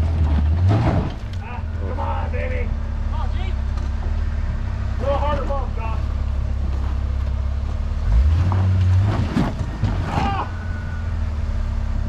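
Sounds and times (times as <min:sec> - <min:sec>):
jeep engine running: 0:00.0 - 0:12.0
knocks and crunches on rocks: 0:08.3 - 0:10.4.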